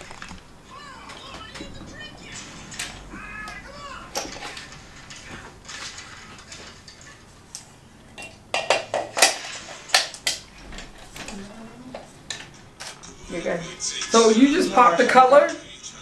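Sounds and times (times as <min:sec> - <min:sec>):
metal dish knocking and clicking: 0:08.2 - 0:09.4.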